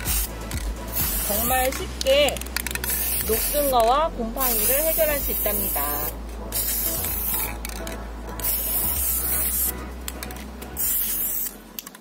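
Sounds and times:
spray paint can hissing: 0.0s - 11.6s.

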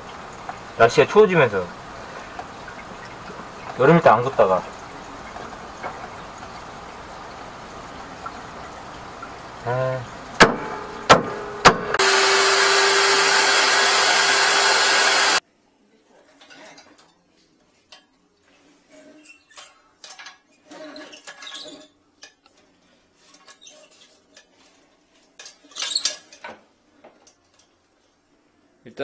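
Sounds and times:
plumbing tools clicking and clinking: 0.0s - 12.0s.

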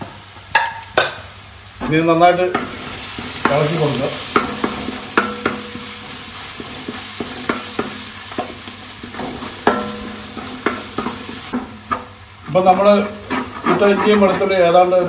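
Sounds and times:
garlic sizzling in hot oil: 0.2s - 15.0s
spatula scraping and knocking pot: 2.5s - 14.9s
metal pot ringing: 3.4s - 6.2s, 9.6s - 11.2s.

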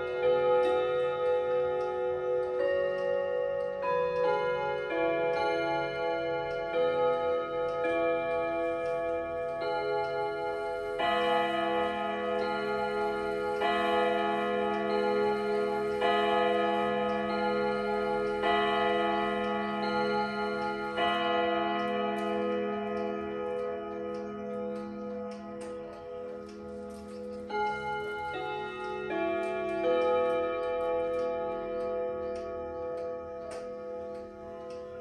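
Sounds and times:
clock chime melody: 0.0s - 35.0s
pendulum clock ticking: 0.0s - 35.0s.

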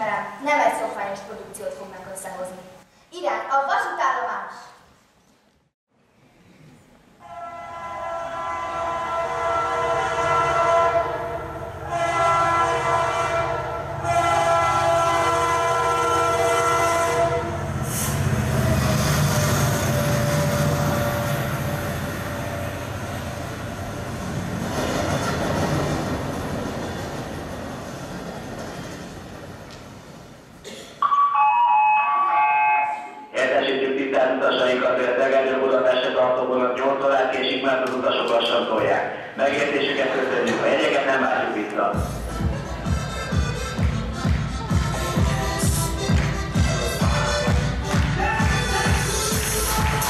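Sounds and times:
train horn blasts: 7.2s - 21.8s
train rumbling: 7.2s - 30.7s, 38.2s - 50.0s
electronic chime: 31.0s - 33.3s.

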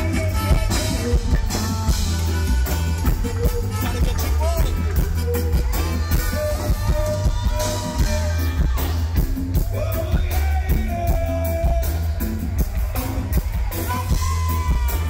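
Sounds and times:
saxophones playing melody: 0.0s - 9.2s
live reggae band playing: 0.0s - 15.0s.

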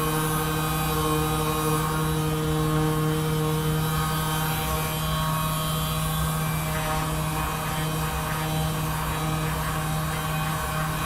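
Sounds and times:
droning hum of held tones: 0.0s - 11.0s.

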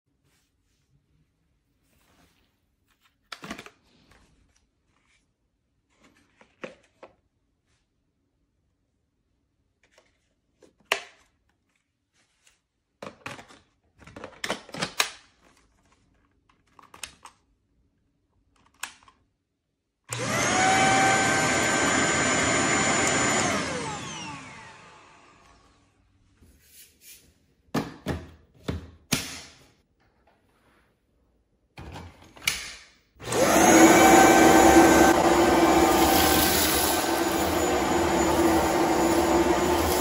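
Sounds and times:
vacuum motor whining: 20.1s - 25.7s, 33.2s - 40.0s.

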